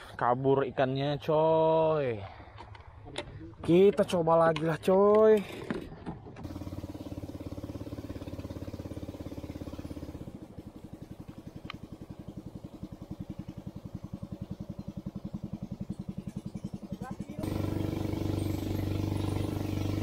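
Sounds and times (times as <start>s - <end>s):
small boat engine puttering: 5.4s - 20.0s.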